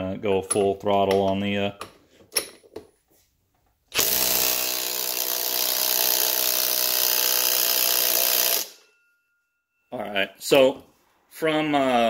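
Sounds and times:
impact wrench hammering: 3.9 - 8.9.

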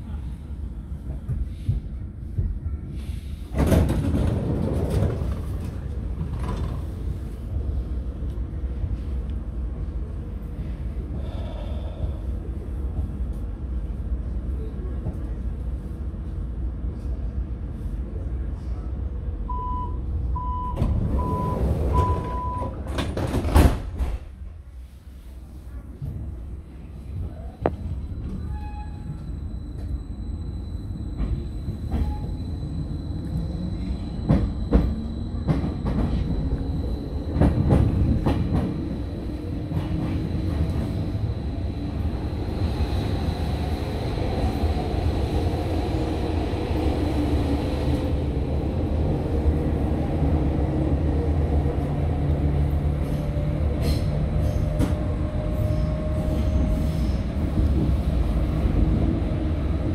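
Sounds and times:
train running rumble: 20.2 - 59.9.

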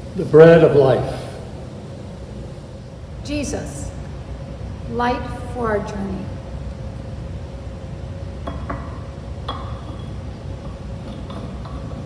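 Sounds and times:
light metal clinks and taps: 8.4 - 12.0.

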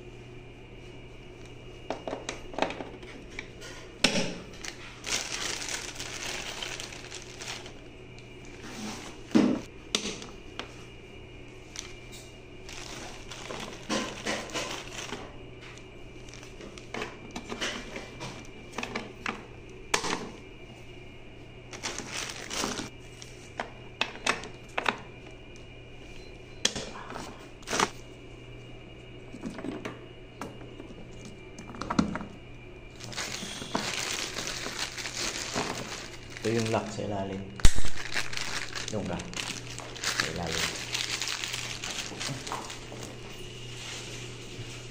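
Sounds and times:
plastic sheeting crinkling: 4.6 - 7.8, 12.6 - 15.2, 21.7 - 22.9, 33.0 - 37.0, 37.6 - 44.3.

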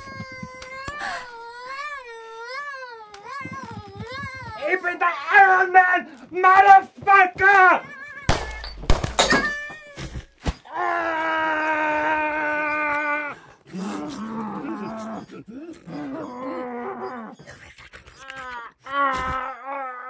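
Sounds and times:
boy sobbing: 0.0 - 5.0, 10.7 - 17.3, 18.2 - 20.0
long wailing cry: 10.7 - 17.4, 18.2 - 20.0.

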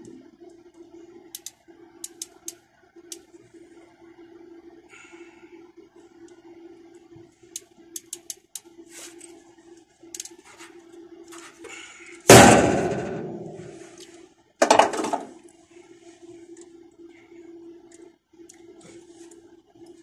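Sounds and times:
steady low hum: 0.0 - 20.0
pliers clicking on wire: 7.6 - 8.6
loud ringing metallic clang: 12.3 - 13.7.

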